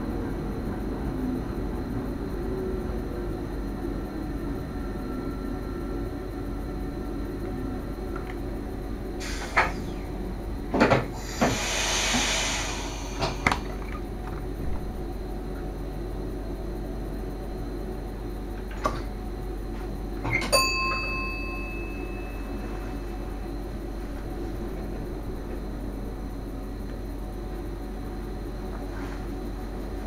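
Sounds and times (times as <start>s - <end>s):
steady low cab hum: 0.0s - 11.7s, 12.6s - 30.0s
air hiss: 9.2s - 10.0s, 11.1s - 13.7s.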